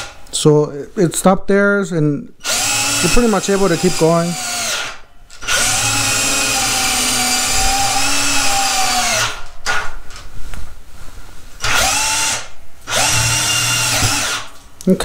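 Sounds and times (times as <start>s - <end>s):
cordless drill boring into wood: 2.4s - 9.5s, 11.6s - 14.5s.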